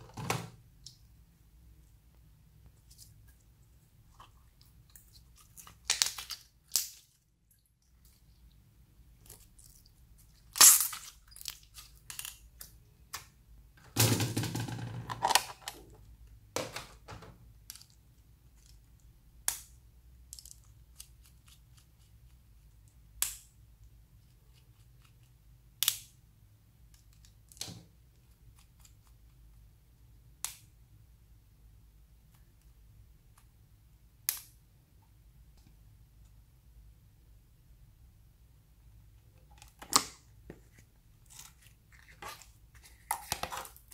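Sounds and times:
plastic pens snapping apart: 19.4 - 19.8, 23.2 - 23.5, 25.8 - 26.2, 34.2 - 34.6.

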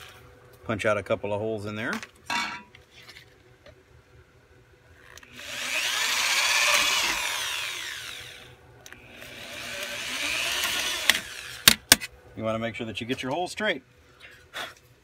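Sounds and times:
electric drill boring: 5.1 - 11.8.

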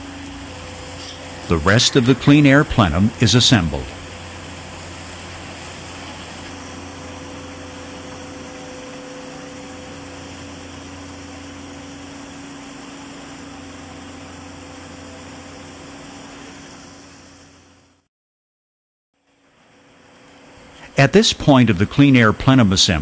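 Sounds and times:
second steady tone: 0.0 - 4.2
machinery humming: 0.0 - 18.0, 19.5 - 23.0.

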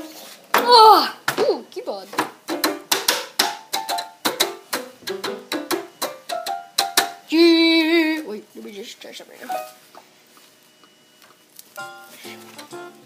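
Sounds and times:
keyboard struck with stick: 2.5 - 7.2.

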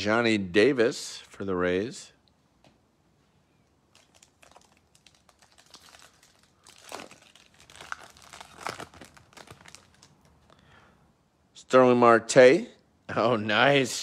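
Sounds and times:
card pack wrapper crinkling: 3.9 - 10.6.

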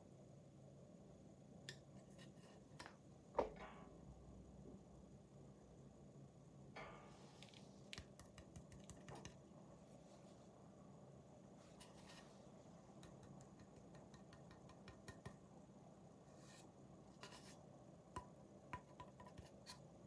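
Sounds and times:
hands clicking and rubbing on board: 8.0 - 9.4, 13.0 - 15.4, 18.2 - 19.8.

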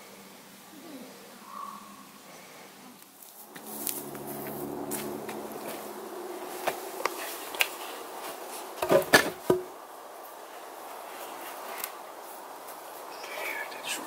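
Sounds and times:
light footsteps: 3.2 - 9.6, 10.3 - 13.2
wooden log knocks: 8.8 - 9.7.

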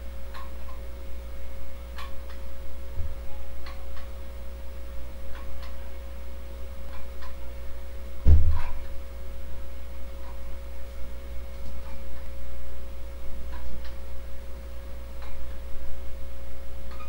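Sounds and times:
low hum: 0.0 - 17.0
dull thump: 8.2 - 8.7.

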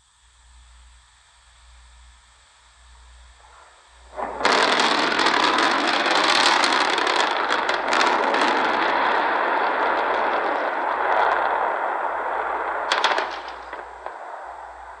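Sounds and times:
faint hiss: 0.0 - 15.0
rocket explosion roar: 3.4 - 15.0.

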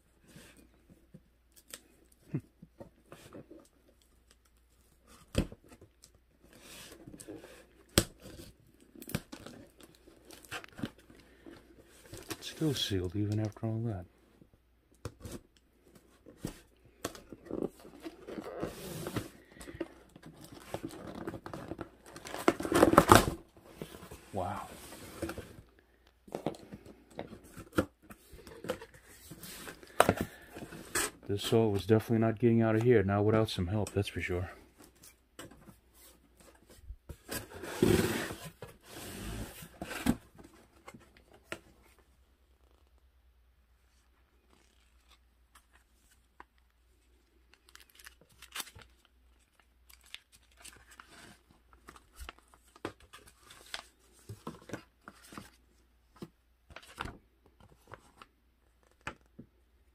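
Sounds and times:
cardboard and paper rustling: 15.1 - 31.9, 47.4 - 59.4
cardboard ripping: 20.4 - 23.4.

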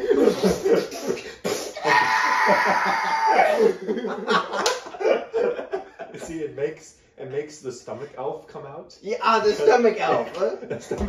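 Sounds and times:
young men laughing: 0.0 - 6.5, 9.6 - 11.0.

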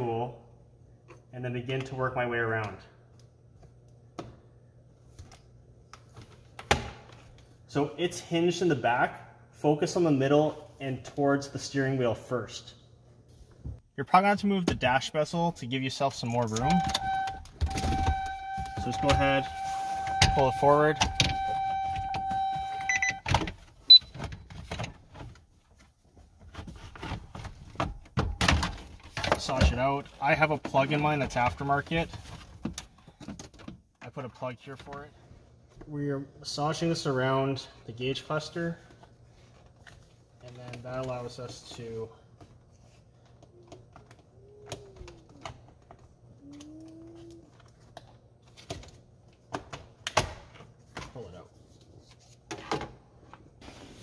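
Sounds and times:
electronic warning tone: 16.6 - 23.2.

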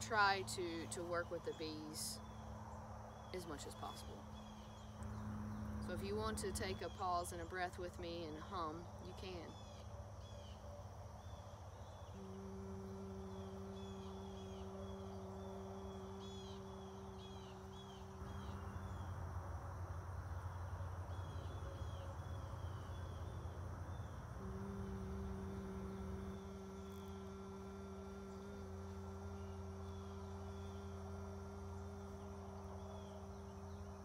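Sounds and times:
woman humming low note: 0.0 - 2.2, 5.8 - 9.6, 12.0 - 19.1, 24.3 - 34.0.

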